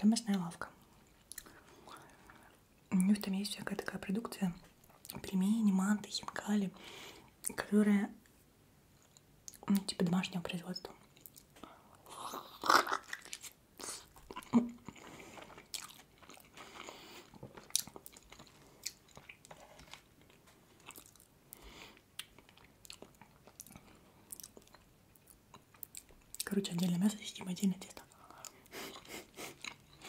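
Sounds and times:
wet chewing and smacking: 11.0 - 11.7, 12.6 - 27.0, 28.1 - 30.0.

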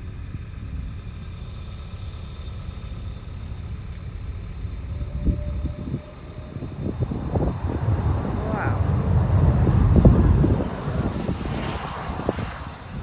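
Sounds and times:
jet turbofan engines rumbling: 0.0 - 13.0
wind buffeting microphone: 4.7 - 13.0.

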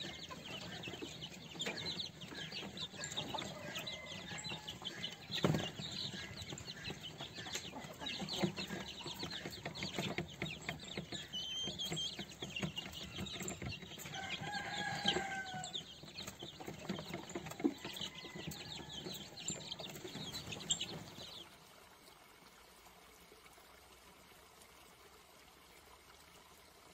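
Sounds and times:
chicks peeping and clucking: 0.0 - 21.4
faint running water hiss: 20.9 - 26.9.

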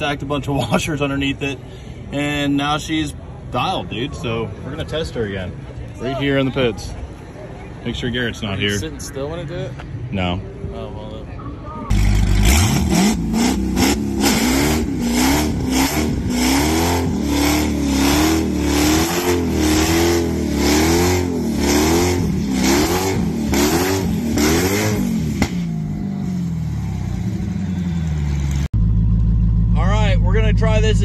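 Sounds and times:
car engine revving: 11.9 - 31.0.

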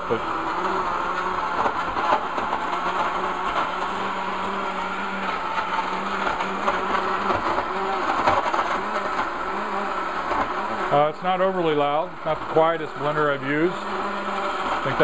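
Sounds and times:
blender running: 0.0 - 15.0.

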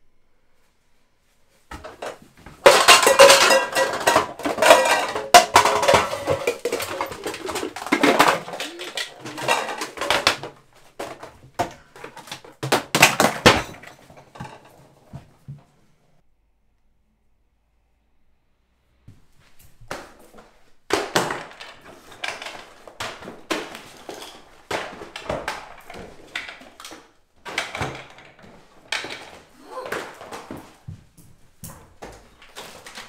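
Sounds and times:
dishes and cutlery clattering: 1.8 - 14.8.

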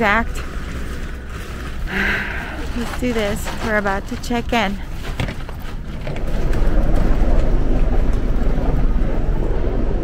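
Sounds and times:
low rumble of check-in hall: 5.7 - 10.0.

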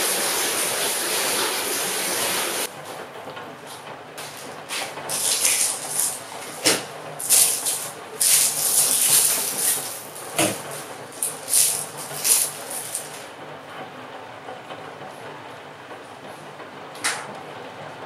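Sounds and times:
plastic bag crinkling: 5.1 - 6.6, 7.2 - 13.3.

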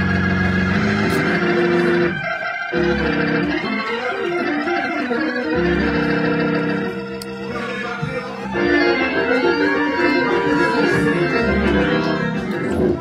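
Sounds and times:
organ playing gospel chords: 0.0 - 13.0.

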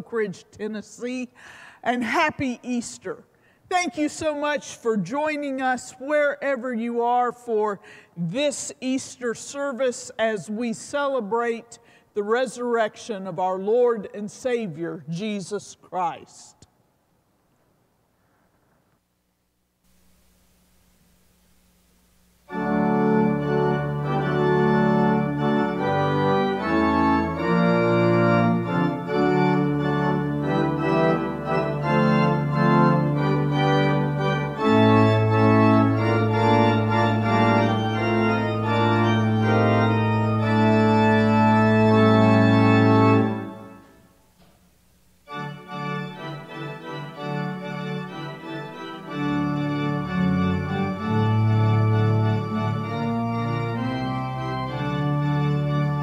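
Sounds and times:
pipe organ chords: 20.0 - 56.0.

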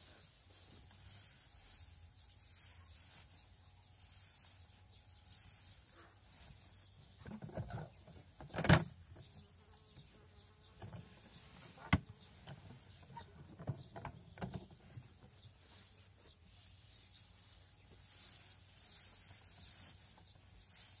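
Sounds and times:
hay rustling: 0.0 - 7.2, 14.7 - 21.0.

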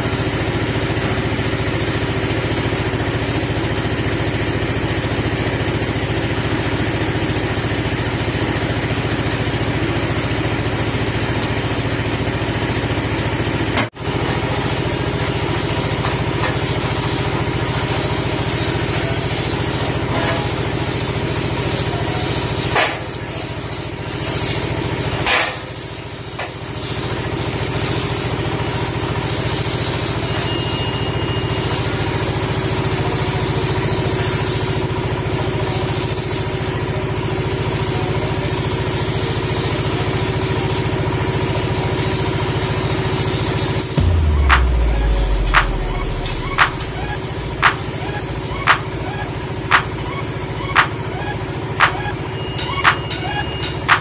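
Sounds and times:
machine drone: 43.5 - 54.0.

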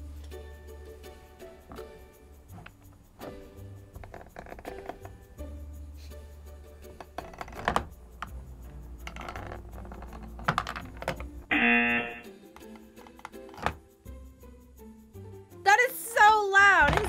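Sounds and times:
plastic game clicks and clacks: 7.0 - 8.4, 9.0 - 11.4, 12.6 - 13.8
loud buzzing tone: 11.5 - 12.3.

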